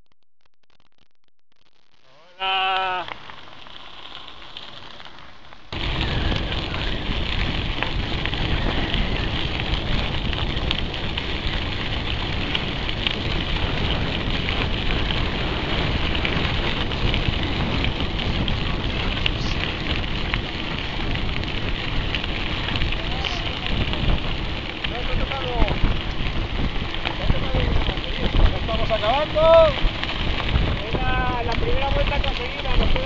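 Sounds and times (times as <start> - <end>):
bicycle tyres rolling on gravel: 1.6 - 33.0
wind on microphone: 5.7 - 33.0.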